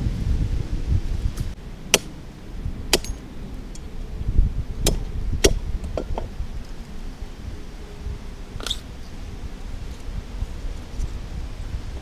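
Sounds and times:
wind rumble on microphone: 0.0 - 12.0
cleaver cracking shells on wood: 2.9 - 3.8.

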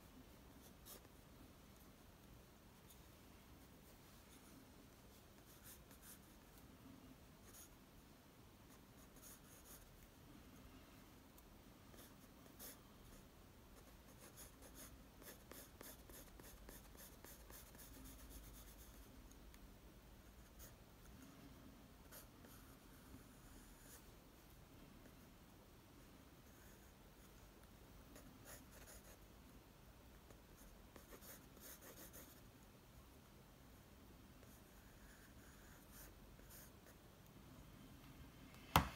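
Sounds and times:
pencil scratching on paper: 0.5 - 1.2, 5.3 - 6.6, 8.7 - 10.0, 11.9 - 12.8, 13.8 - 19.1, 22.0 - 24.1, 28.1 - 29.2, 30.3 - 32.4.

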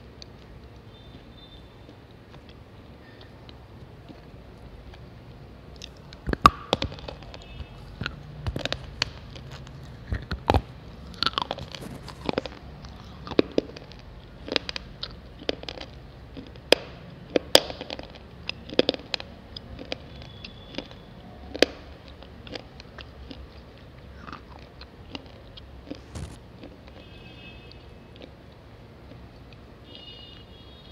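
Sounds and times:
pencil being chewed: 5.7 - 26.8.

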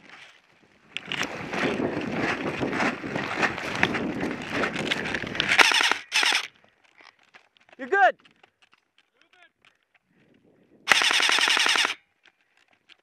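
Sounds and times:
branches scraping: 0.0 - 9.2
footsteps running through dry grass: 0.0 - 13.0.

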